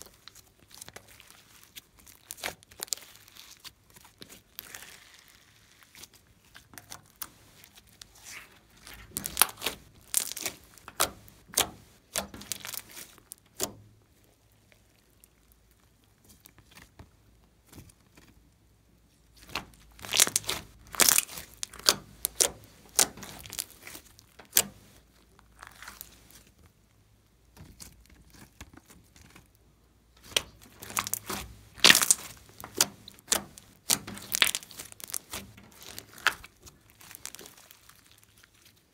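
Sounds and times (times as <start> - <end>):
slime crackling and popping: 0.0 - 17.0, 19.3 - 29.6, 30.2 - 38.9.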